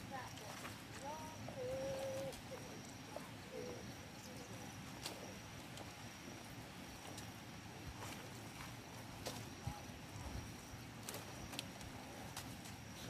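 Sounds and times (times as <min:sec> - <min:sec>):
faint chirp: 0:00.0 - 0:05.6
thin steady high whine: 0:00.0 - 0:13.0.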